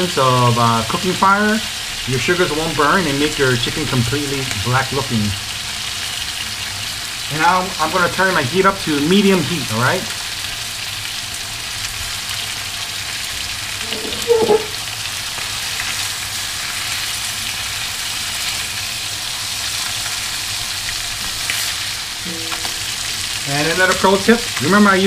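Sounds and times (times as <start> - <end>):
chicken sizzling in hot oil: 0.0 - 25.0
short pitched sound: 13.8 - 14.8, 22.2 - 24.0.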